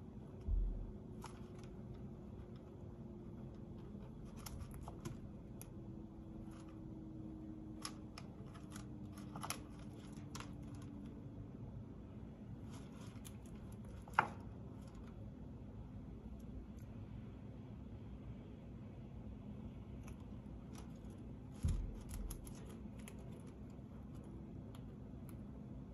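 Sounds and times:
chinchilla gnawing wood: 0.1 - 11.3, 12.5 - 15.4, 20.0 - 25.5.

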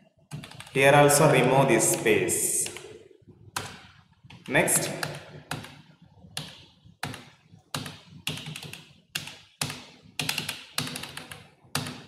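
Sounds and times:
keyboard keystrokes: 6.4 - 12.0.

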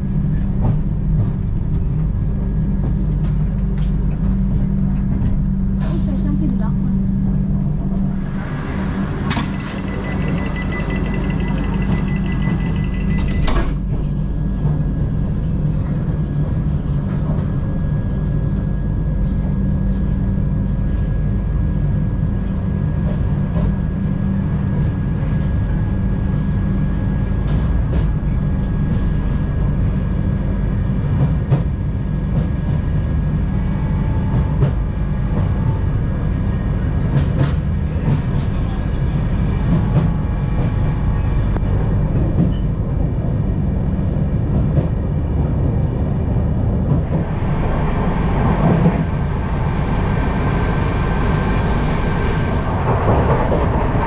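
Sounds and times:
train coach rumbling: 0.0 - 54.0
high ringing tone: 9.4 - 13.6.

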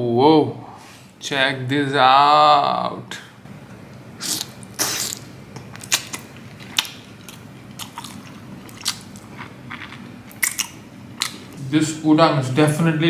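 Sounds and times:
person chewing prawn: 4.2 - 11.6.

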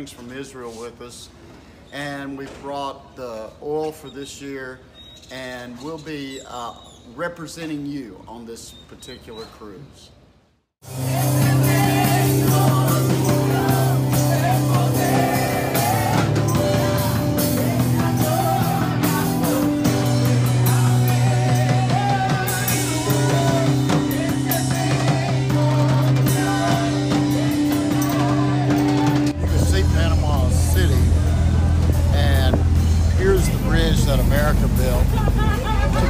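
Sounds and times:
drum kit: 10.8 - 36.0
electric guitar: 10.8 - 36.0
keyboard chords: 10.8 - 36.0
people singing: 10.9 - 32.8.

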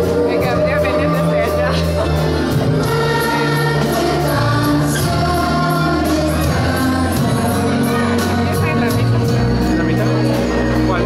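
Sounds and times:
instrumental accompaniment with bass: 0.0 - 11.0
children's choir singing: 2.2 - 11.0.

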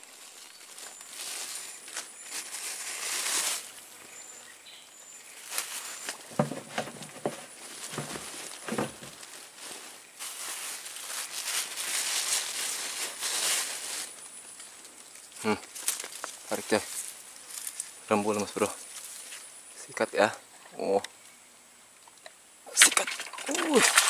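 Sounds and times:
high hissing insects or reeds: 0.0 - 24.0.

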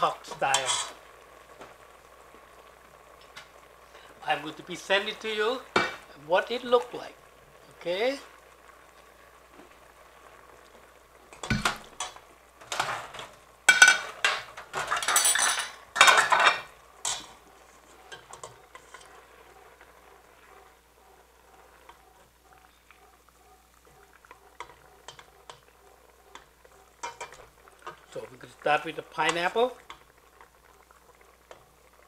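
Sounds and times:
sauce bubbling faintly: 0.0 - 32.0
metal ladle scraping a pot: 0.5 - 1.0, 13.8 - 22.2, 23.8 - 28.1.

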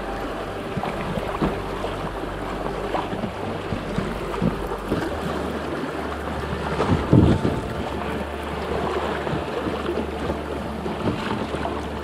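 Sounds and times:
paddle strokes splashing in water: 0.0 - 12.0
water noise: 0.0 - 12.0
wind noise: 6.4 - 9.6.

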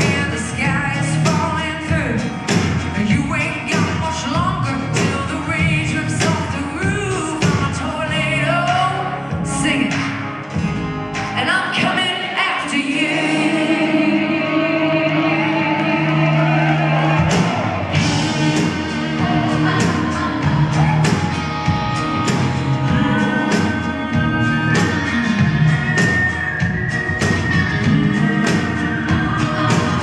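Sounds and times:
woman singing: 0.0 - 10.2, 11.4 - 17.1, 18.2 - 30.0
electric guitar: 0.0 - 12.4, 13.0 - 30.0
drum hits: 17.0 - 23.8.

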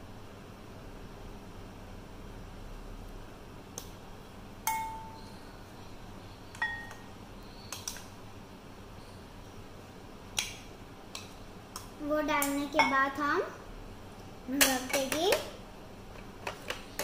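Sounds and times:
glass ringing: 4.7 - 5.3, 6.6 - 7.1.

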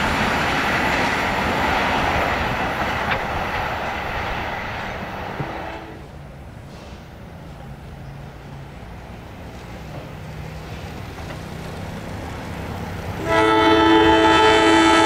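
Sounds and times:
locomotive engine and rail rumble: 0.0 - 15.0
train horn chord: 5.4 - 6.0, 13.2 - 15.0.

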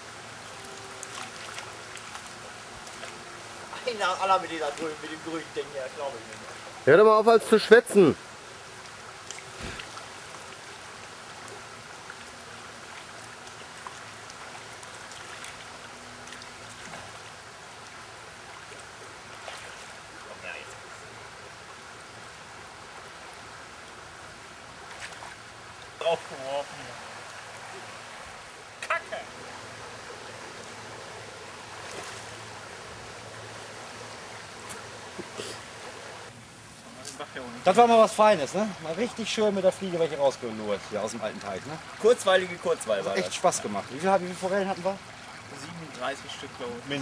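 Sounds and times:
river water rushing over riffle: 0.0 - 47.0
faint clicks and splashes: 0.5 - 3.2, 8.8 - 20.8, 24.8 - 26.0.

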